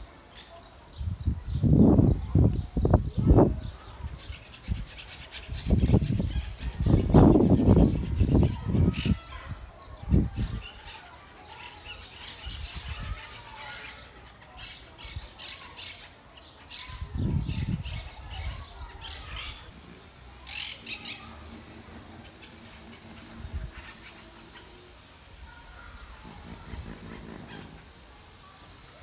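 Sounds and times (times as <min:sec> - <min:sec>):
parakeets squawking: 0:04.2 - 0:09.4, 0:20.4 - 0:24.9.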